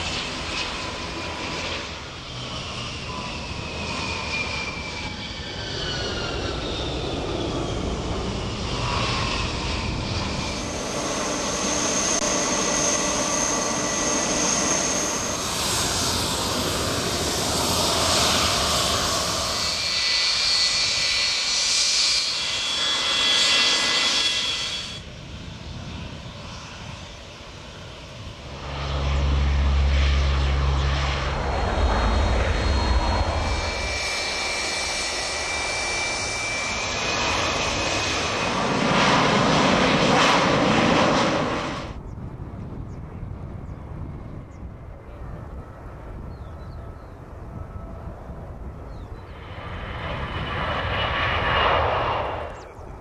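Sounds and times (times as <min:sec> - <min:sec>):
jet engine roar and whine: 0:00.0 - 0:53.0
deep low rumble: 0:28.1 - 0:34.5.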